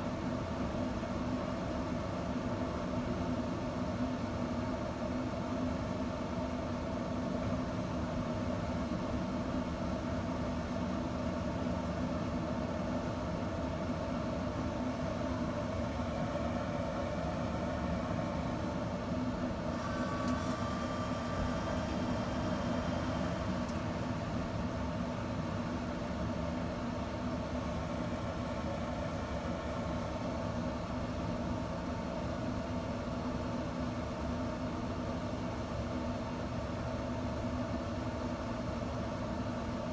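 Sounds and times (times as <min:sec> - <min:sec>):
smoker fan humming: 0:00.0 - 0:39.9.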